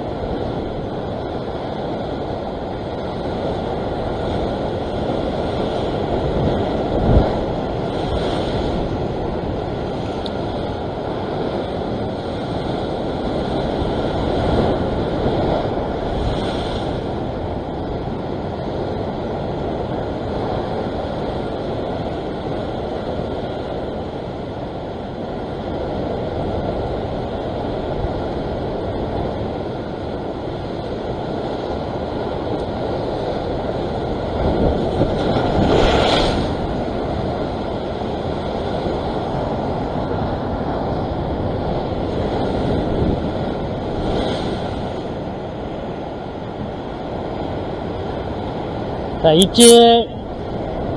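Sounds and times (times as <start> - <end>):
wave crashing: 0.0 - 18.3, 32.8 - 39.4
ocean surf rushing over rocks: 0.0 - 50.9.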